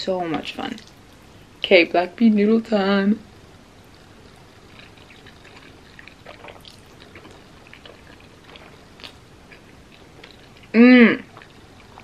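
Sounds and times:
wet chewing mouth sounds: 0:03.9 - 0:12.0.

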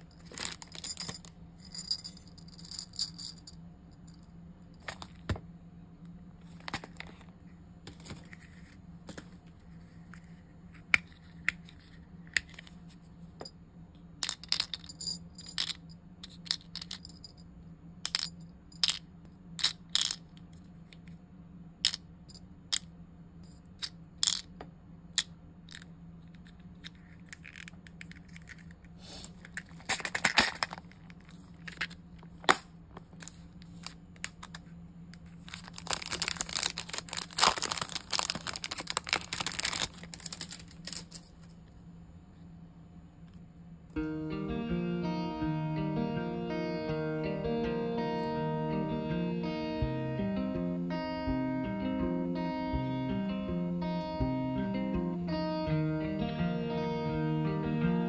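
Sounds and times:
plastic beads clicking into case: 0:35.5 - 0:41.2.

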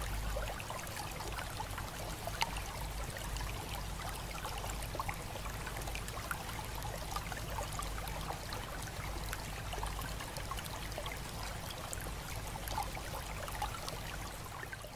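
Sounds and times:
water trickling and splashing: 0:00.0 - 0:14.9.

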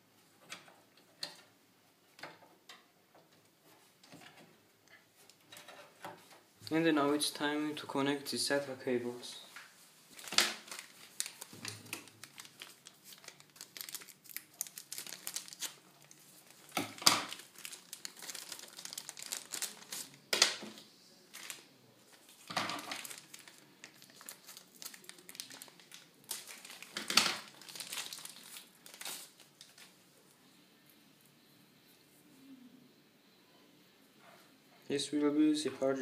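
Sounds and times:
plastic packaging crinkling: 0:09.6 - 0:30.0.

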